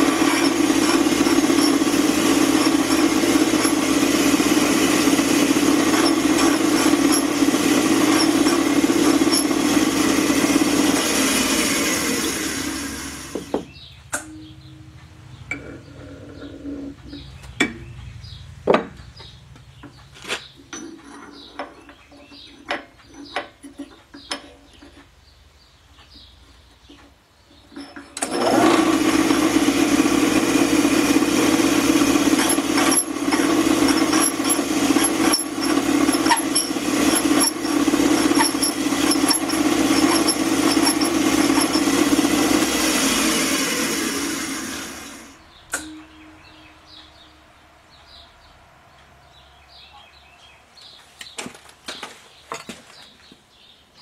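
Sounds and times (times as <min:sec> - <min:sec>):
grinder motor running: 0:00.0 - 0:13.8, 0:28.2 - 0:45.4.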